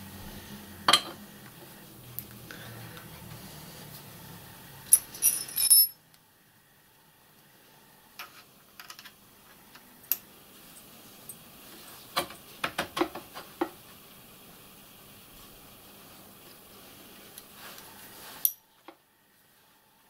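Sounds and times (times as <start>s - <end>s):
metal clinks and knocks: 4.9s - 6.0s.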